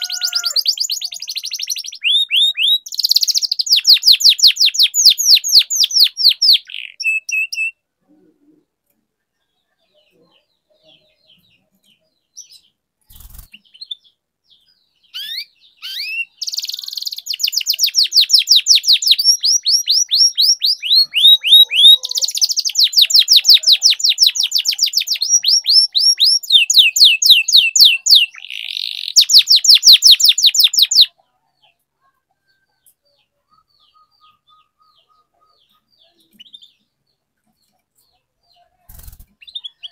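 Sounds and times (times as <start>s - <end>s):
canary singing high trills: 0.0s - 7.8s, 15.0s - 31.2s, 33.4s - 36.9s.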